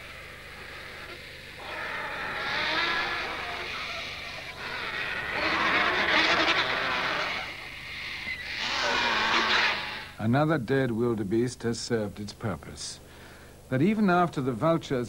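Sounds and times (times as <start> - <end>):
vultures squabbling and calling: 0.0 - 10.2.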